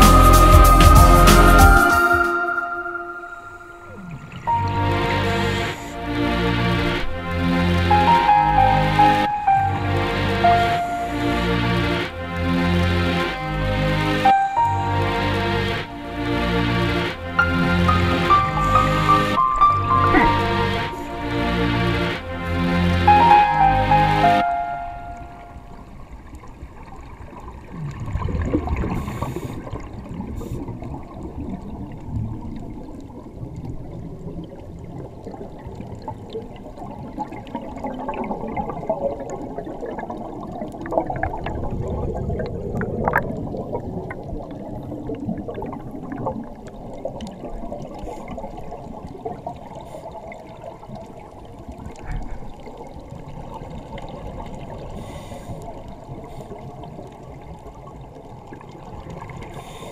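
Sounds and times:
muffled underwater noise: 1.9 - 6.1, 18.3 - 21.4, 50.7 - 59.9
bubbles gurgling: 2.4 - 6.0, 17.4 - 21.3, 24.4 - 55.0.

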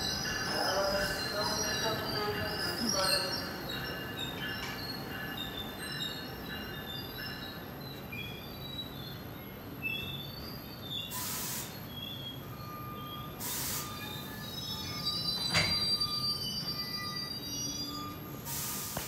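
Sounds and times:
train rumble: 0.0 - 9.8
train wheels squealing on rails: 0.0 - 19.0
air hiss bursts: 11.1 - 11.8, 13.4 - 14.0, 18.4 - 19.0.

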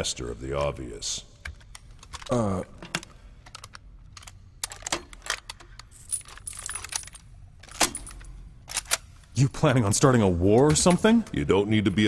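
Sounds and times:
gun mechanisms clicking and clacking: 1.4 - 9.4.

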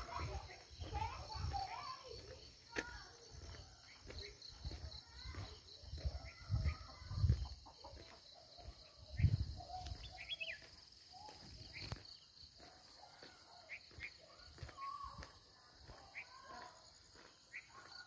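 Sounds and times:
birds chirping: 0.0 - 18.0.

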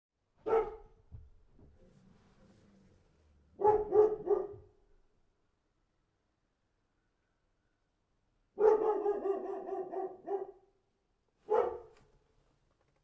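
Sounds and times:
dog barking: 0.4 - 1.0, 3.6 - 4.8, 8.6 - 10.8, 11.4 - 12.0.

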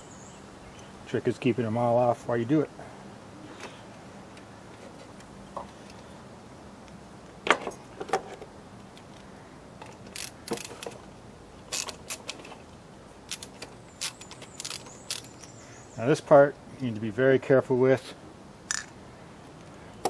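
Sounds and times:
screwdriver and plastic parts clicking: 13.3 - 15.6.

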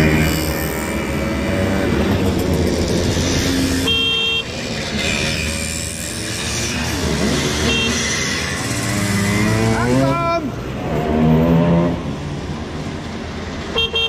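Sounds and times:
moped engines buzzing past: 0.0 - 12.4
horn beeping: 3.8 - 4.6, 7.5 - 8.2.

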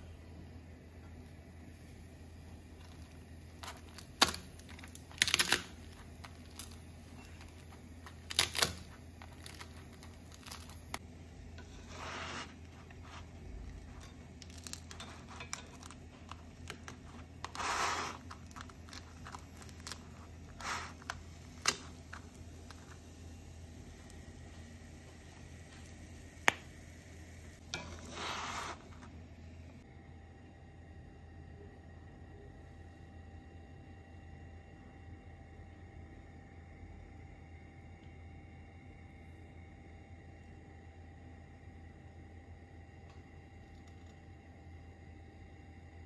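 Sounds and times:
low steady hum: 0.0 - 46.0
chips crunching and crackling: 2.8 - 11.0, 13.4 - 23.0.

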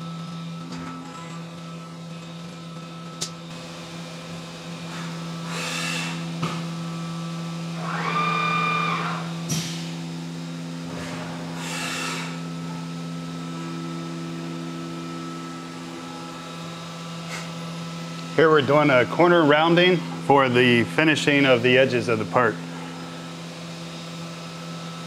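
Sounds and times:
cnc mill humming: 0.0 - 25.0.

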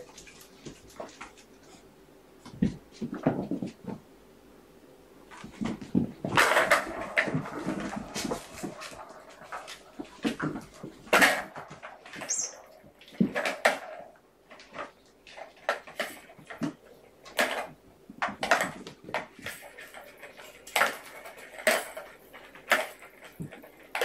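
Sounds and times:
kittens playing on carpet: 0.0 - 4.1, 5.2 - 24.0
plastic toys clattering: 5.3 - 24.0.

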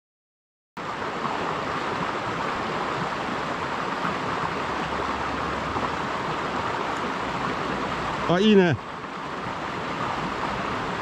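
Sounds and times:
stream water rushing over rocks: 0.8 - 11.0.

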